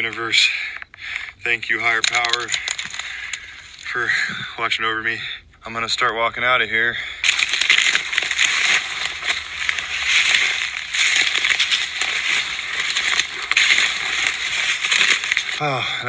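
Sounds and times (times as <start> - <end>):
dry brush rustling underfoot: 1.6 - 4.2, 7.2 - 15.8.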